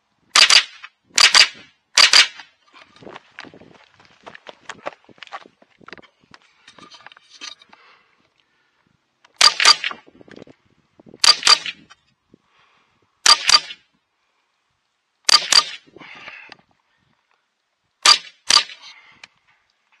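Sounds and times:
rifle shots: 0:00.4 - 0:02.5, 0:09.4 - 0:10.0, 0:11.2 - 0:11.8, 0:13.2 - 0:13.8, 0:15.3 - 0:15.8, 0:18.0 - 0:18.8.

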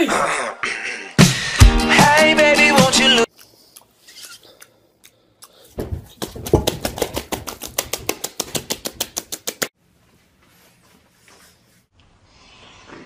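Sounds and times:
open-mouthed chewing and lip smacking: 0:03.3 - 0:05.8.

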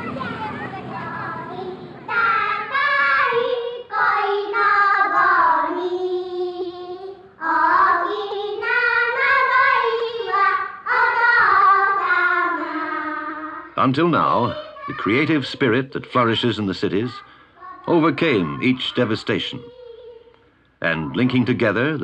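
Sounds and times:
child singing slow melody: 0:00.6 - 0:13.8, 0:19.4 - 0:21.4.

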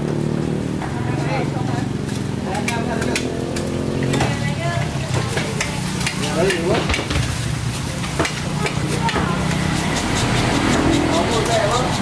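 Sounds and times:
blade clicking on bone: 0:08.6 - 0:12.0.

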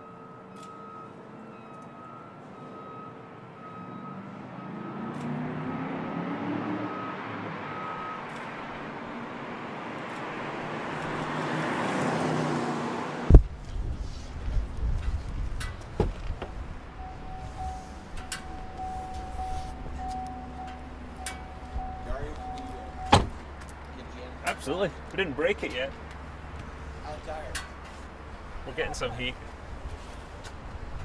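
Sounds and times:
faint electronic beep: 0:00.0 - 0:05.1, 0:17.0 - 0:23.2
car engine accelerating: 0:03.8 - 0:31.0.

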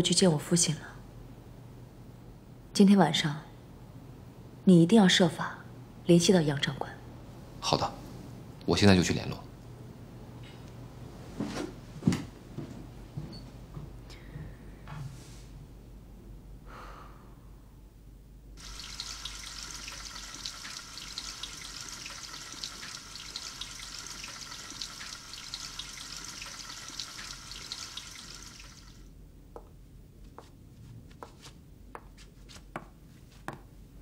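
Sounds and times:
tap water running into basin: 0:18.6 - 0:29.1.

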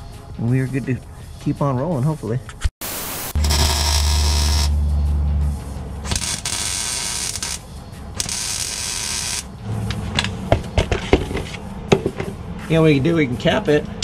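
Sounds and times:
welder crackling hiss: 0:02.8 - 0:04.7, 0:06.1 - 0:09.4.

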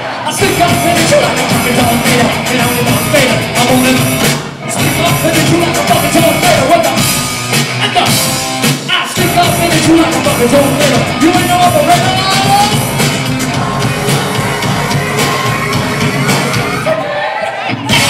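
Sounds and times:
drums: 0:00.0 - 0:18.0
electro-punk band playing: 0:00.0 - 0:18.0
person singing: 0:00.2 - 0:04.2, 0:04.8 - 0:07.0, 0:08.9 - 0:12.9
distorted electric guitar: 0:00.3 - 0:17.0, 0:17.6 - 0:18.0.

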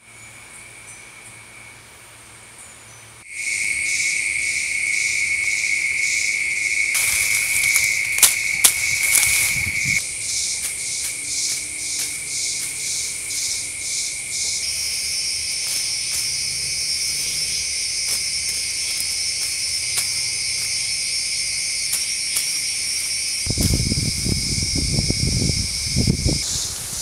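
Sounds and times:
insect high buzz: 0:03.2 - 0:27.0
pulsing insect chirps: 0:03.3 - 0:27.0
hands rustling dry leaves: 0:06.4 - 0:27.0.

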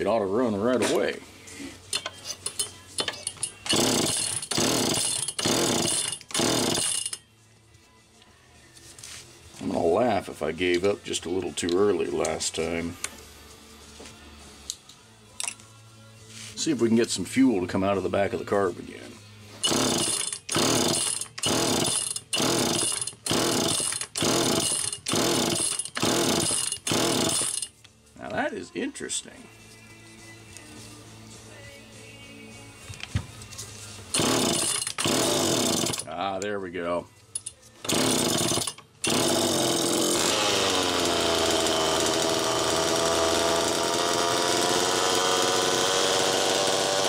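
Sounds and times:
chainsaw recoil starter pulls: 0:01.9 - 0:07.2, 0:19.6 - 0:27.7, 0:34.1 - 0:36.1, 0:37.4 - 0:47.0.

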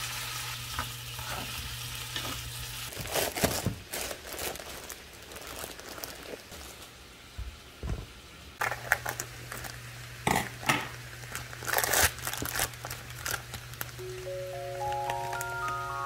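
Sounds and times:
plastic packaging crinkling: 0:02.9 - 0:07.0, 0:08.6 - 0:09.8, 0:11.2 - 0:14.0, 0:14.7 - 0:16.0.

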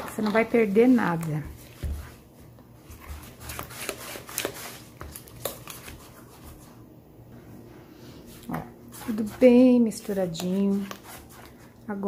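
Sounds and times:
spatula scraping mixing bowl: 0:08.9 - 0:11.8.

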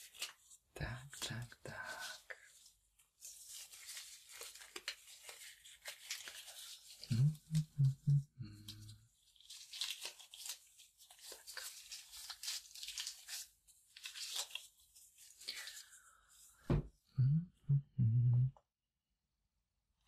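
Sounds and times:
medical gloves rustling and stretching: 0:02.0 - 0:07.1, 0:09.1 - 0:16.7
low pulses: 0:07.1 - 0:08.6, 0:17.2 - 0:18.6
short low hum: 0:17.2 - 0:18.6.

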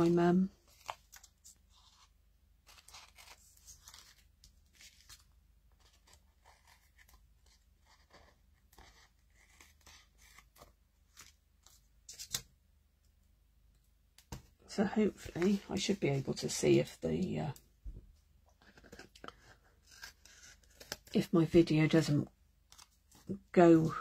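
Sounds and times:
paper crackle: 0:00.0 - 0:12.4
paper rustling and crinkling: 0:00.0 - 0:12.4, 0:18.6 - 0:21.2.

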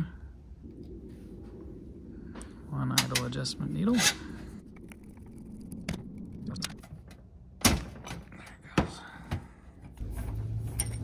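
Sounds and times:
metal tools clinking on steel: 0:10.6 - 0:11.0.

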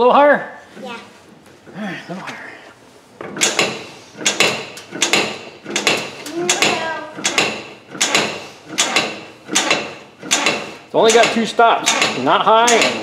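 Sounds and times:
hydraulic lift pump clanking: 0:03.2 - 0:13.0.

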